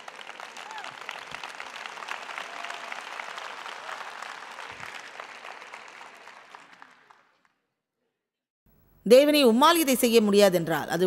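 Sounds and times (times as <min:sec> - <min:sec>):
large audience applauding: 0:00.0 - 0:07.6.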